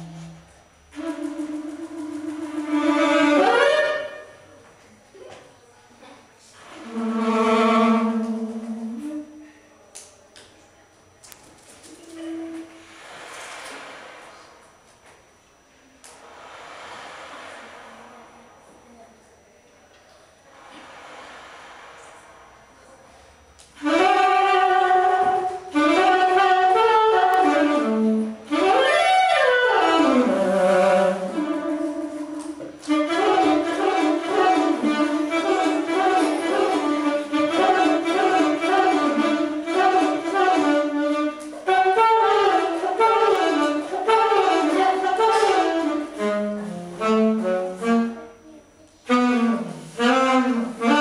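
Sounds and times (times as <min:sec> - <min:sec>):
solo saxophone jazz melody: 0:00.0 - 0:04.6, 0:06.6 - 0:09.5, 0:12.0 - 0:13.1, 0:23.8 - 0:51.0.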